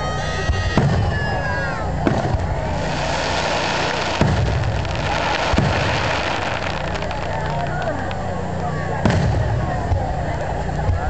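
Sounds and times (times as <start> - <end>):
fireworks bursting: 0.8 - 10.1
steady hiss: 2.4 - 8.7.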